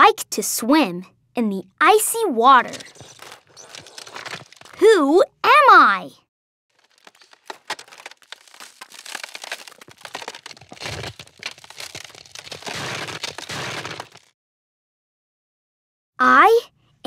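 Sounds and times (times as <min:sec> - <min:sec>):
snow crunching and cracking: 0:02.6 - 0:05.0, 0:06.7 - 0:14.3.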